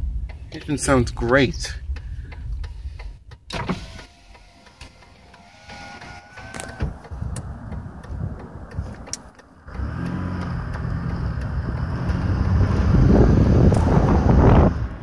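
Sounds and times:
car engine accelerating: 3.3s - 15.0s.

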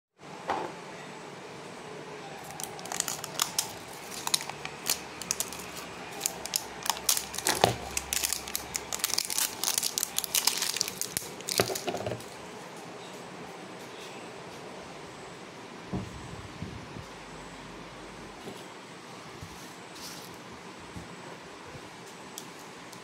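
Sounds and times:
label tearing and crinkling: 2.4s - 12.4s.

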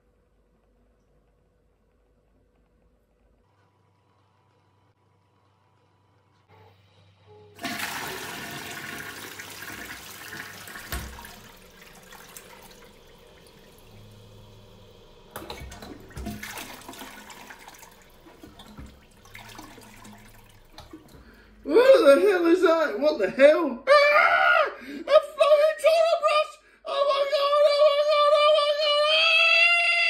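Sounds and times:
toilet flushing: 7.6s - 22.7s.

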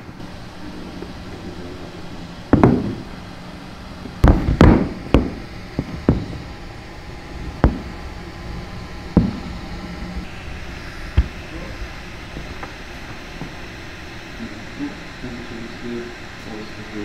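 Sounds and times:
robot feet knocking on wooden floor: 2.5s - 3.0s, 4.2s - 6.4s.

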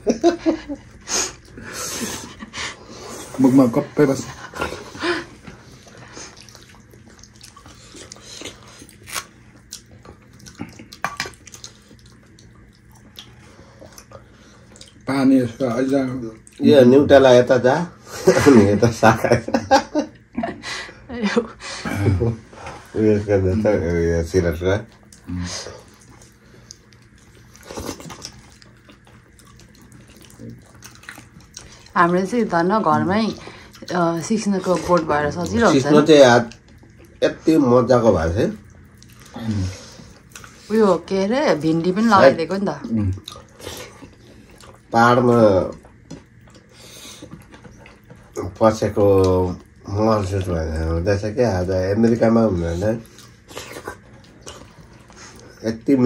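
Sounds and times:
lip smacks and chewing: 5.4s - 15.1s, 24.9s - 32.0s, 36.5s - 37.2s, 38.6s - 39.4s, 40.0s - 40.7s, 43.1s - 44.9s, 45.7s - 48.4s, 53.0s - 55.6s.

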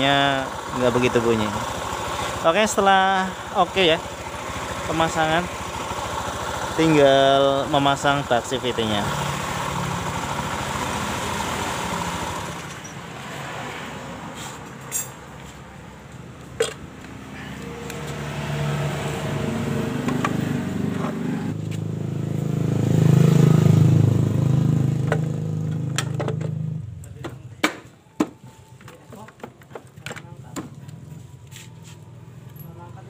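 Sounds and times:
scooter engine running: 0.0s - 13.1s, 16.0s - 27.5s.

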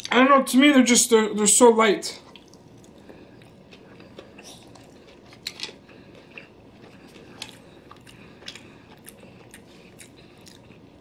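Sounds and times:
person chewing with mouth smacks: 2.3s - 11.0s.

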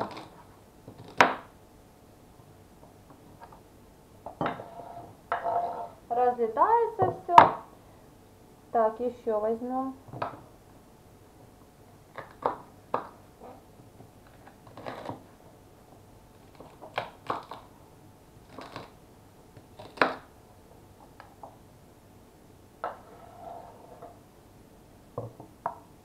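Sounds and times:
knife cutting celery on wooden board: 0.0s - 1.4s, 14.7s - 15.2s, 18.5s - 19.0s.

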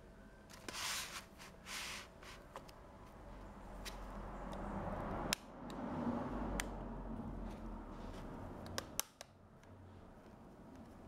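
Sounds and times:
scraping at phone case edge: 0.6s - 2.5s
plastic clips clicking: 8.6s - 9.7s.

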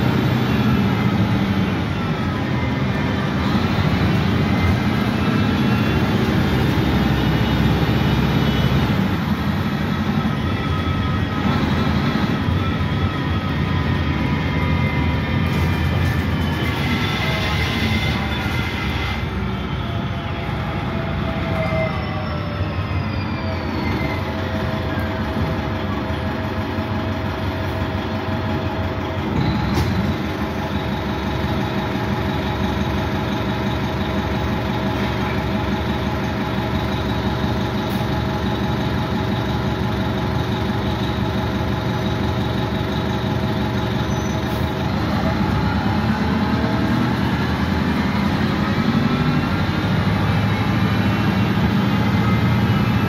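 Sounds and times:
bus engine drone with whine: 0.0s - 53.0s.

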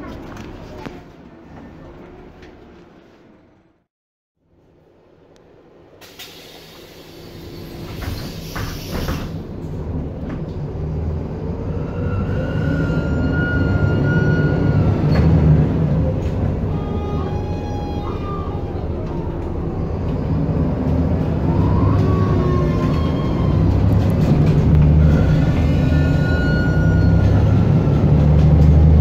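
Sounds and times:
air brake hisses: 6.0s - 9.5s
diesel bus engine revving: 14.5s - 29.0s.

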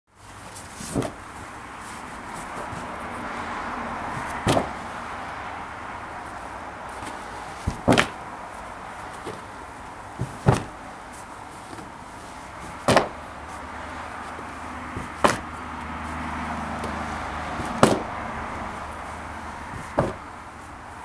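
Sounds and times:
rugs thudding onto a stack: 10.2s - 10.8s, 12.7s - 13.2s, 15.0s - 15.5s.

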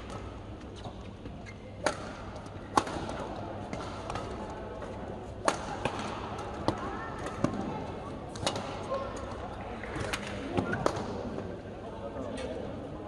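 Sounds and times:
racket hitting shuttlecock: 1.8s - 4.5s, 5.4s - 7.7s, 8.3s - 8.8s.

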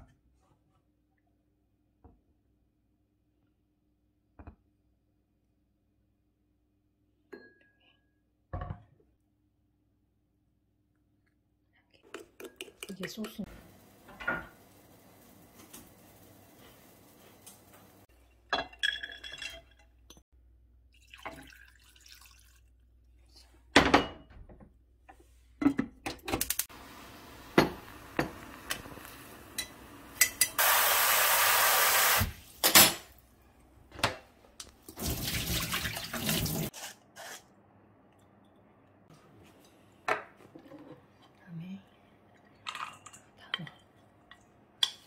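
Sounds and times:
running water: 34.8s - 36.7s.

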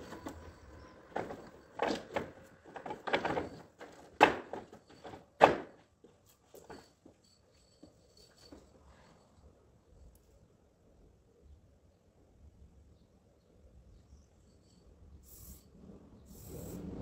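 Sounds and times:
ladder knocking and scraping: 0.0s - 7.2s.

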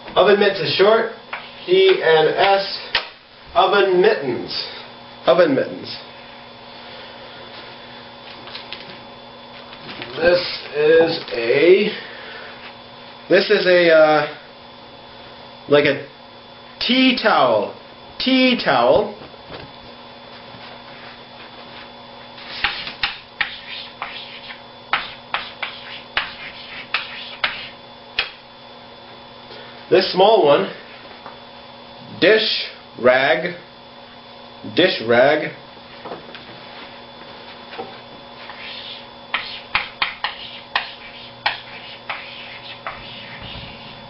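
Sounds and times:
chalk writing on blackboard: 22.4s - 27.8s, 38.4s - 44.0s.

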